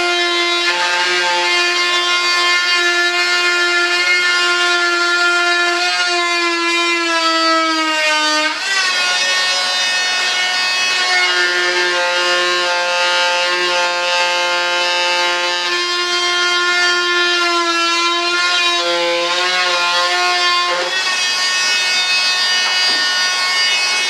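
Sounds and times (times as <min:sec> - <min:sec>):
rotary tool high whine: 0:15.4 - 0:24.0.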